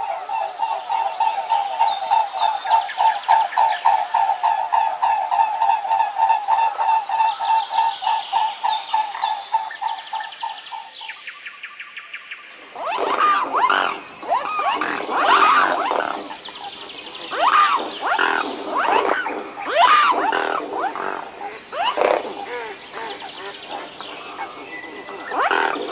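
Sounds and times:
swans calling: 0:12.6 - 0:25.9.

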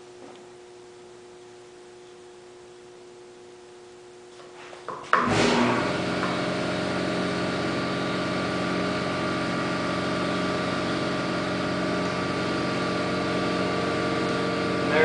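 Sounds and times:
motor humming: 0:05.2 - 0:15.0.

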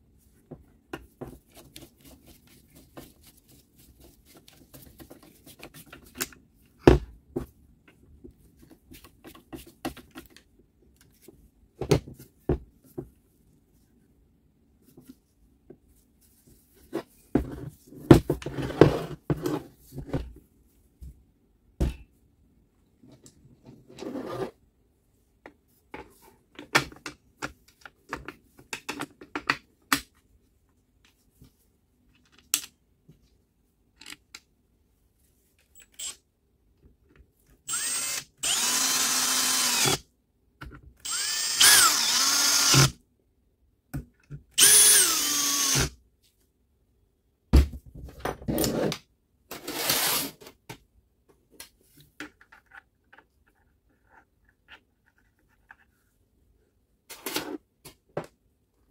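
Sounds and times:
cordless drill driving screws: 0:35.9 - 0:36.2, 0:37.7 - 0:40.0, 0:41.0 - 0:43.0, 0:44.6 - 0:45.9.

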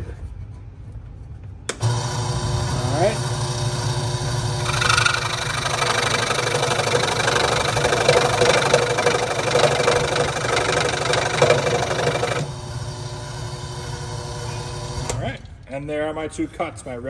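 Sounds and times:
scroll saw cutting wood: 0:04.6 - 0:12.5
scroll saw running: 0:04.6 - 0:12.5.

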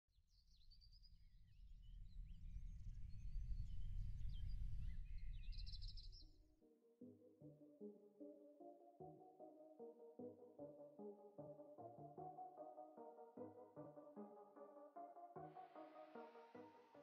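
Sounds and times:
low rumble: 0:01.7 - 0:06.2
synthesizer music: 0:06.8 - 0:17.0.

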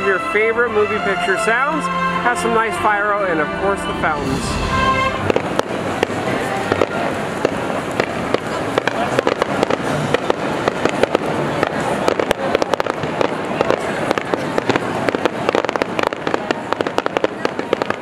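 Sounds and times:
background din: 0:00.8 - 0:07.2
pyrotechnics crackling: 0:04.2 - 0:18.0.

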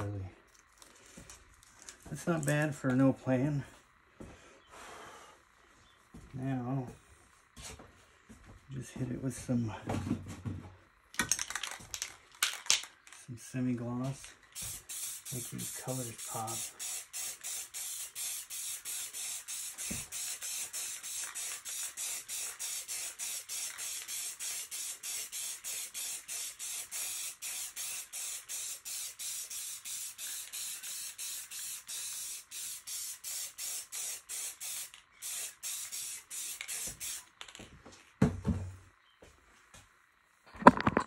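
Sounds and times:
pulsing spray hiss: 0:14.6 - 0:37.3.

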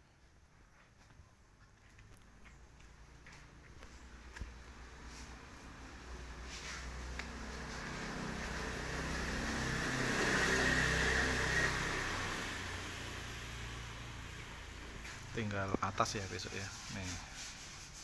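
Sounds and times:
vehicle passing by: 0:03.1 - 0:16.6.

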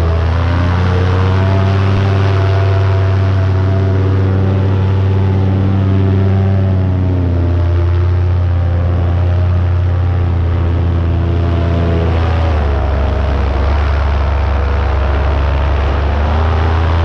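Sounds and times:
paramotor engine droning: 0:00.0 - 0:17.0.

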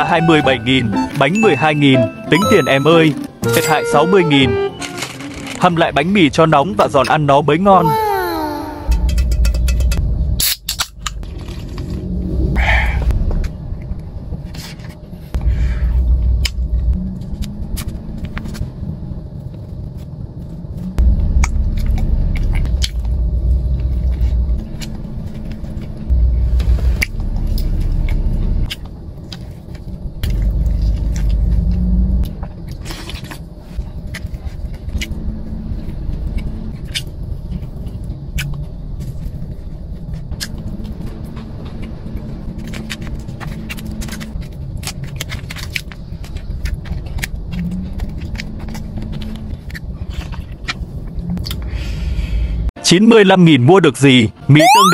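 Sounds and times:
deep rumble: 0:08.8 - 0:45.0
biting and chewing crusty bread: 0:27.6 - 0:51.6.

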